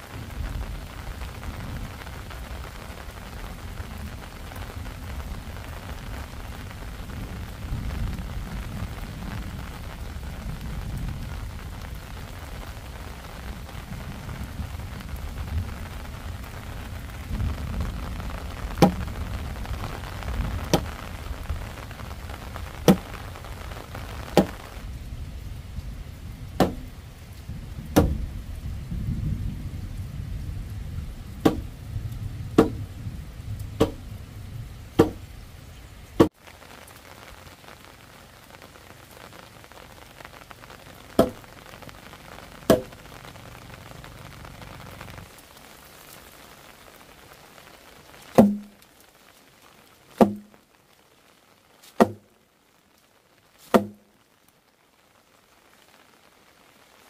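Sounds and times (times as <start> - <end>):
wooden mallet striking timber: 18.8 - 19.0, 22.9 - 23.1, 26.6 - 26.9, 28.0 - 28.2, 31.4 - 31.7, 32.6 - 32.8, 33.8 - 34.0, 35.0 - 35.2, 48.4 - 48.7, 50.2 - 50.5, 52.0 - 52.2, 53.7 - 54.0.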